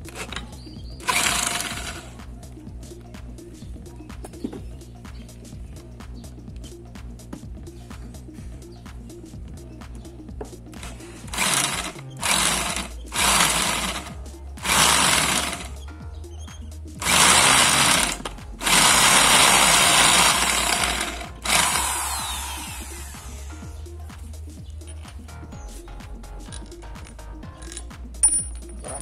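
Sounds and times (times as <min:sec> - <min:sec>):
electric drill boring steel: 0:00.0 - 0:02.2, 0:10.8 - 0:15.8, 0:17.0 - 0:23.5.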